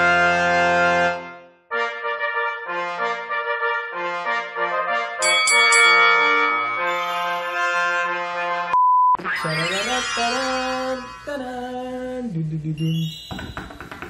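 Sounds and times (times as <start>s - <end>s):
brass music with held notes: 0.0s - 8.8s
short electronic beep: 8.8s - 11.3s.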